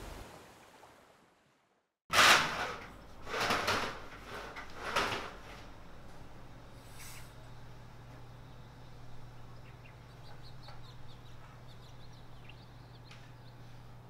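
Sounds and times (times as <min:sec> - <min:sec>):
curtain sliding along rail: 0:02.1 - 0:05.6.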